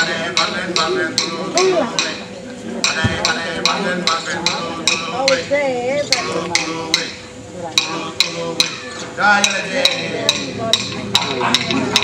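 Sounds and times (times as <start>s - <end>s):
men singing: 0.0s - 12.0s
clapsticks striking a beat: 0.4s - 2.2s, 2.8s - 5.4s, 6.1s - 7.2s, 7.8s - 8.8s, 9.4s - 12.0s.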